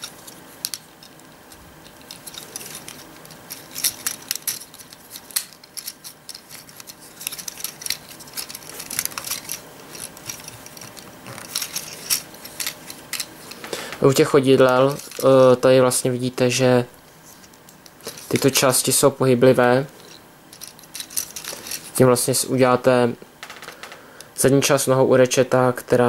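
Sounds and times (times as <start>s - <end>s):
plastic toy clicking and rattling: 0.0s - 13.6s, 20.0s - 22.0s.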